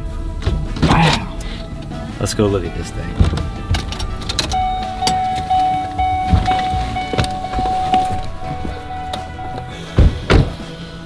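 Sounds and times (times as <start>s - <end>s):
car warning chime: 3.5s - 10.1s.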